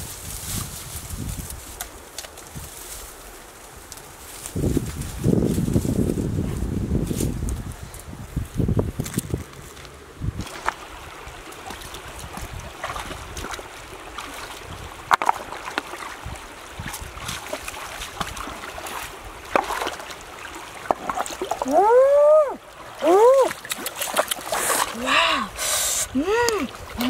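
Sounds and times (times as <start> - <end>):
stream running over stones: 0.0 - 27.0
splashes of wading in water: 9.2 - 27.0.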